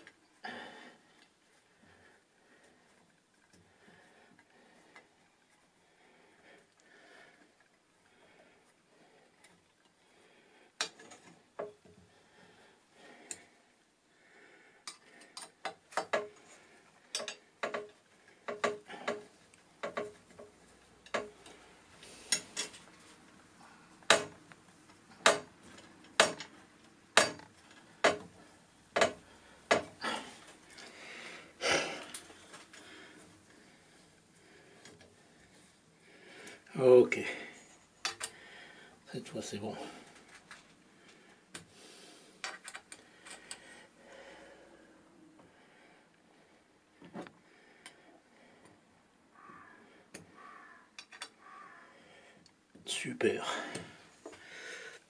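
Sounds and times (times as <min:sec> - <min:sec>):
metallic clicks of tools on metal: 0:17.1 - 0:21.6, 0:27.2 - 0:28.3.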